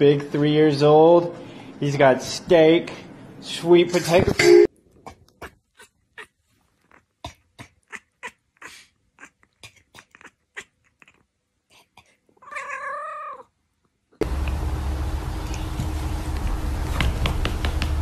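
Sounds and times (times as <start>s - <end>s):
cat meowing: 12.4s - 13.5s
loud steady hiss with hum: 14.2s - 18.0s.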